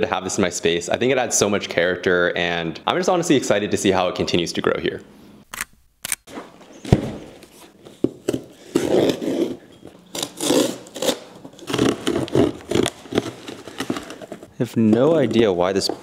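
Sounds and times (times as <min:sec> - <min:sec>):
cardboard scraping and tearing: 0:08.6 - 0:15.2.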